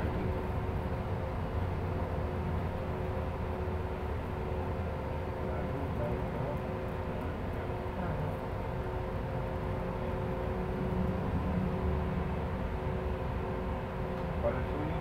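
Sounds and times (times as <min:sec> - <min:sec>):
bus engine and road rumble: 0:00.0 - 0:15.0
constant whine: 0:00.0 - 0:15.0.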